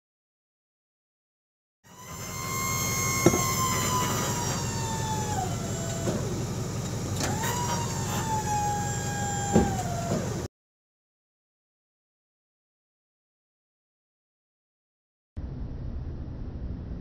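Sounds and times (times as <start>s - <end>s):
hydraulic pump whining: 1.9s - 10.5s
low steady hum: 15.4s - 17.0s.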